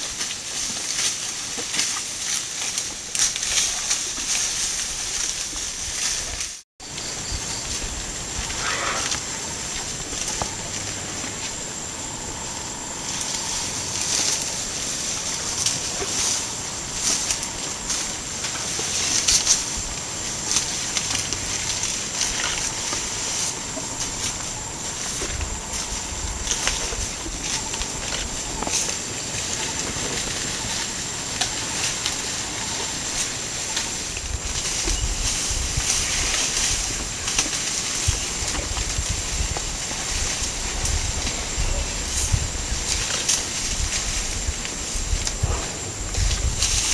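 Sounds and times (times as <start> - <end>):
crackles and clicks: 0.0 - 46.9
steady hiss: 0.1 - 46.9
thin high whine: 8.5 - 35.4.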